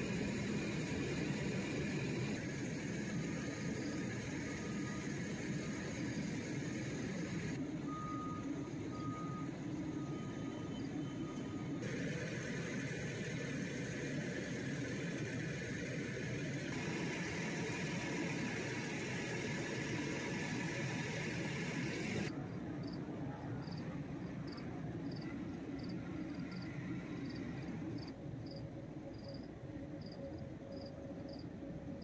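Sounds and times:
hiss: 0:00.0 - 0:07.6, 0:11.8 - 0:22.3.

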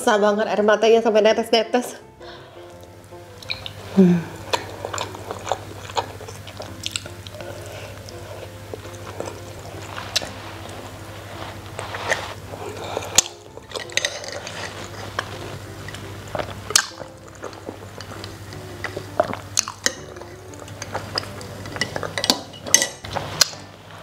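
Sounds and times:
chewing a rice ball: 0:02.6 - 0:24.0
wet mouth clicks and smacks: 0:03.4 - 0:03.8.

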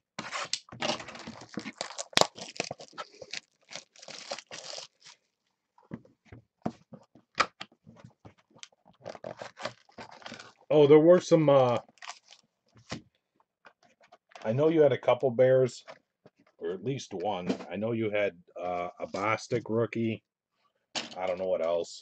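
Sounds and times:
cardboard tearing: 0:00.2 - 0:05.2, 0:09.0 - 0:10.5
foil packs rustling: 0:00.8 - 0:05.2, 0:09.0 - 0:10.7, 0:11.7 - 0:12.4.

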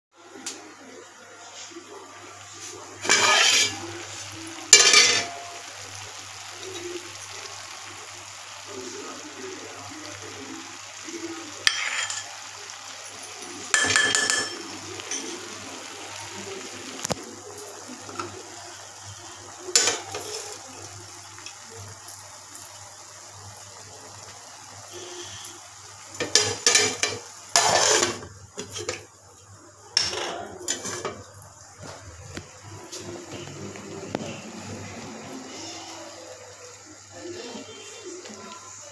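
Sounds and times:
kitchen hiss and hum: 0:00.2 - 0:38.9
metal pot lid scraping: 0:03.0 - 0:03.8, 0:27.6 - 0:28.2.

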